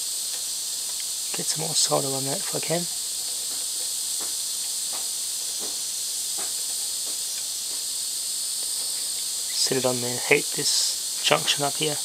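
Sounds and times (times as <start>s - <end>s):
gas flame hissing: 0.0s - 12.0s
faint taps: 3.3s - 5.8s, 6.4s - 7.9s.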